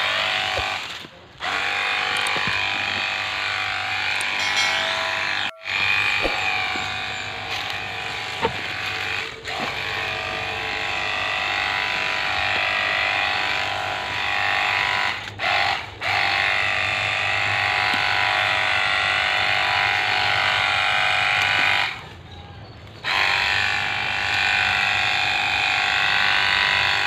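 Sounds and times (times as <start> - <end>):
electric pump motor whining: 0.0 - 27.0.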